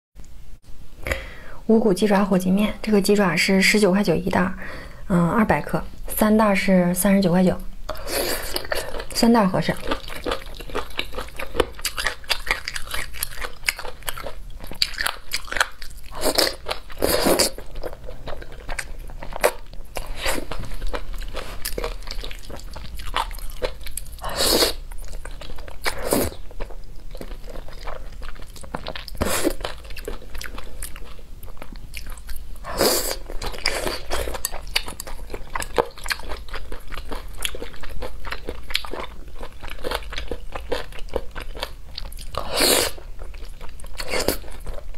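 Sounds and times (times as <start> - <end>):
chewing and crunchy bites: 8.4 - 44.9.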